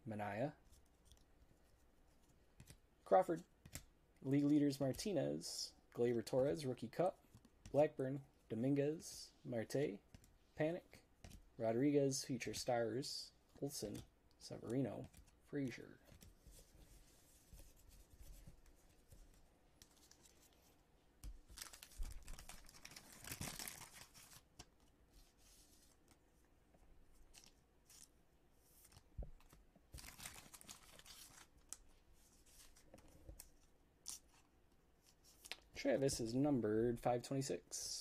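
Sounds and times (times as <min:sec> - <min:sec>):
wrapper tearing and crinkling: 0:21.5 - 0:24.4, 0:30.0 - 0:31.5.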